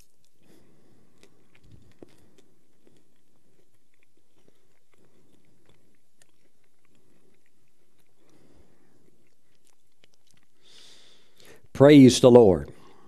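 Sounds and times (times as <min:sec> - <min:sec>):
soft mouth clicks: 0:00.0 - 0:11.5
man chewing wafer: 0:00.0 - 0:11.7.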